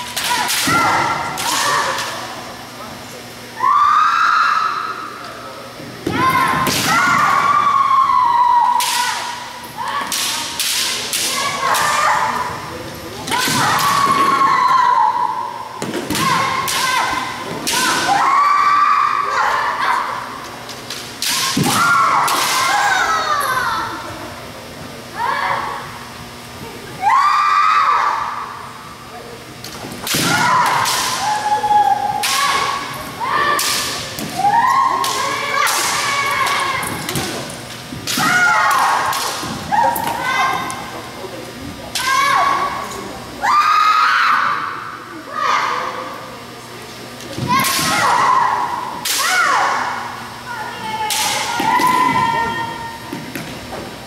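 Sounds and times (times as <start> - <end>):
people shouting kiai: 0.0 - 2.2, 6.1 - 20.4, 21.2 - 24.0, 30.0 - 37.4, 38.0 - 40.9, 41.9 - 46.1, 47.4 - 53.0.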